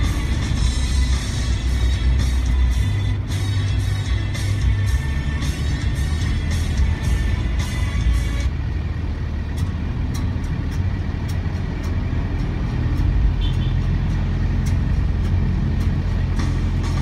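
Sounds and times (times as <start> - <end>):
engine and tyre drone: 0.0 - 17.0.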